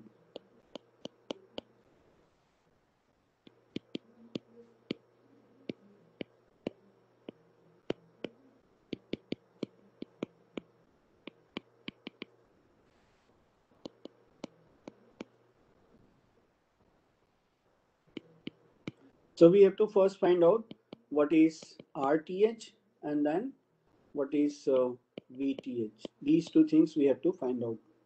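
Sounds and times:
stylus tapping on glass screen: 0:00.3 - 0:01.7, 0:03.5 - 0:05.0, 0:05.6 - 0:12.3, 0:13.8 - 0:15.3.

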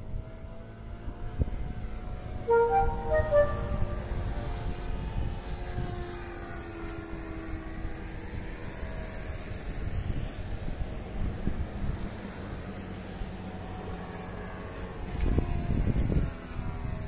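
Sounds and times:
model airplane engine running: 0:04.1 - 0:17.0.

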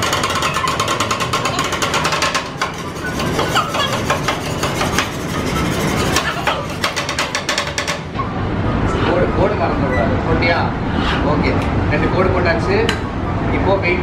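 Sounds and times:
metal spatulas chopping on metal plate: 0:00.0 - 0:08.1.

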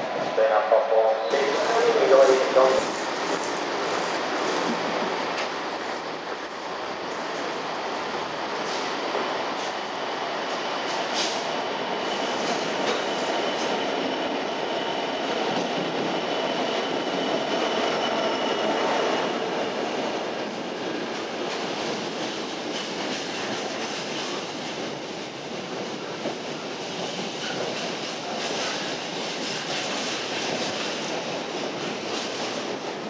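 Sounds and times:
diesel locomotive passing: 0:00.0 - 0:03.9
train wheels rumbling on rails: 0:00.0 - 0:33.0.

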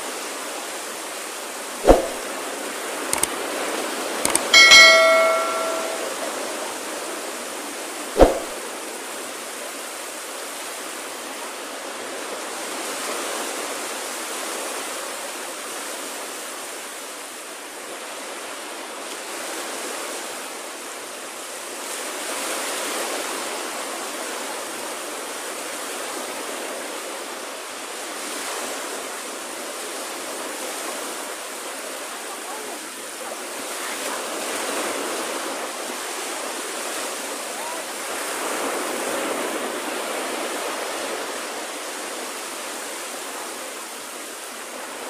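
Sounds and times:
waves breaking on beach: 0:09.2 - 0:45.0.

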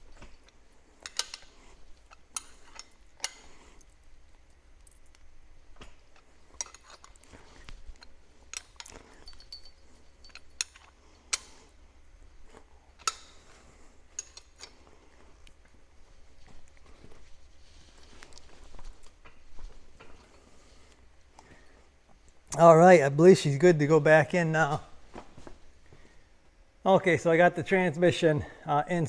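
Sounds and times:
wrench clinking on metal bolts: 0:00.2 - 0:03.6, 0:06.6 - 0:07.4, 0:08.0 - 0:11.6, 0:13.0 - 0:13.4, 0:14.2 - 0:14.8.

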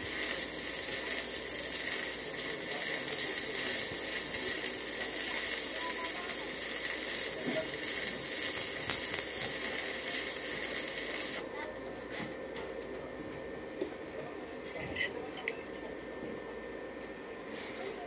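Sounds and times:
welding arc burning: 0:00.0 - 0:12.6.

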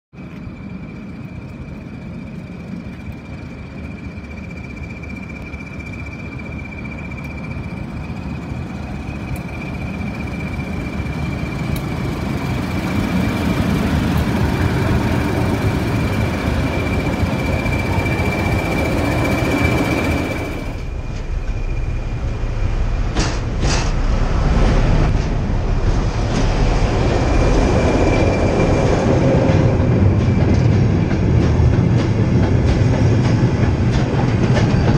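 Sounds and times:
high whine: 0:00.2 - 0:31.7
diesel locomotive engines: 0:00.2 - 0:34.9
train wheels rumbling on rails: 0:00.2 - 0:34.9.

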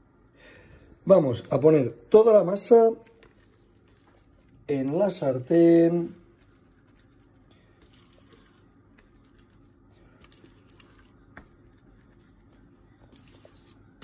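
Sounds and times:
spatula scraping dough: 0:13.0 - 0:14.0.

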